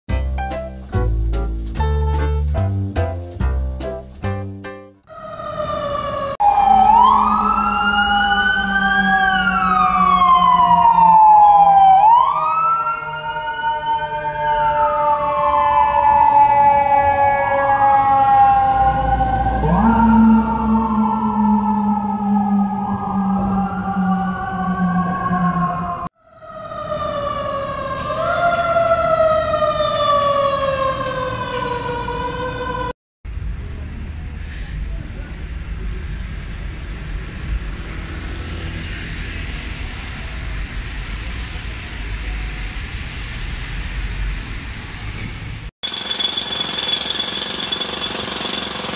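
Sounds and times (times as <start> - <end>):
electronic wail siren: 5.1 - 32.9
steady siren tone falling: 5.1 - 32.9
low traffic rumble: 26.7 - 45.7.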